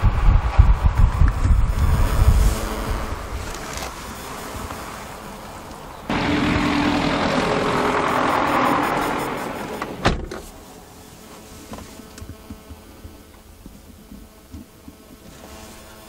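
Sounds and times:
loud whirring: 0:06.0 - 0:10.2.

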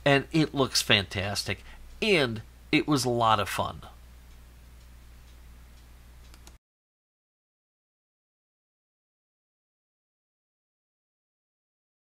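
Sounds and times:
faint clicks: 0:04.3 - 0:06.6.

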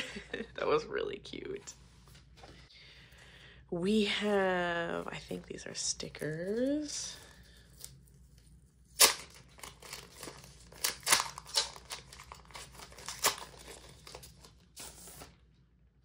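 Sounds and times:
plastic sleeve crinkling: 0:09.0 - 0:15.4.

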